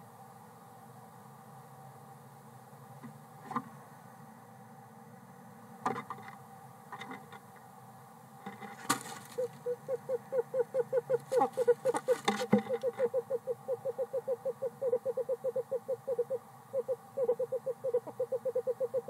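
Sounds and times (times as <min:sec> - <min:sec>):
owl trilling: 0:09.2 - 0:19.0.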